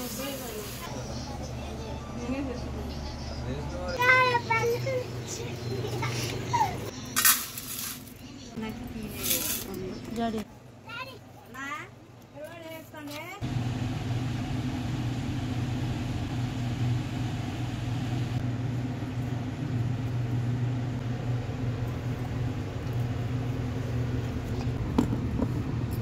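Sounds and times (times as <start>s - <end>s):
low machine hum: 13.4s - 26.0s.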